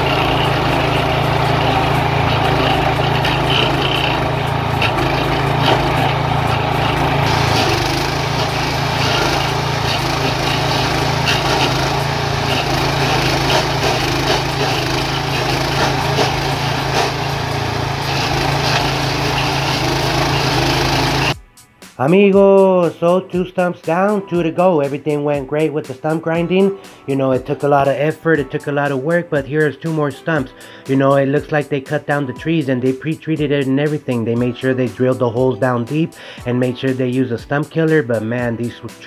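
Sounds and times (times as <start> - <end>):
cutter wheel grinding stump: 0.0 - 21.4
gas engine running: 0.0 - 21.4, 34.4 - 37.0.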